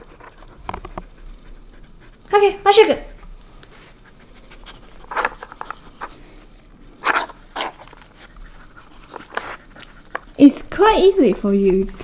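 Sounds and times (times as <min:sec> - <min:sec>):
dog sniffing: 0:00.0 - 0:12.0.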